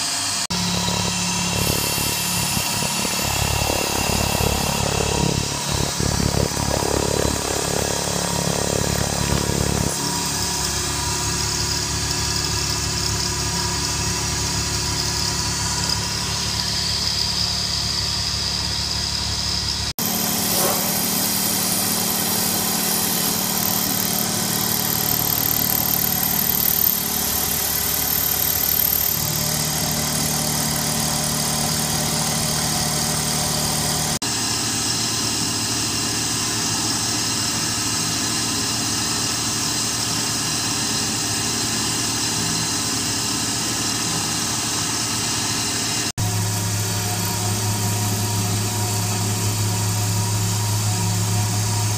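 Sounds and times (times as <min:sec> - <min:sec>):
milling machine whine and cutting: 0:00.0 - 0:51.9.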